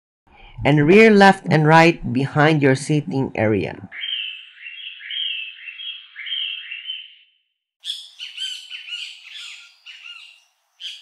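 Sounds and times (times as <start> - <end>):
recorded bird calls: 3.9 - 11.0.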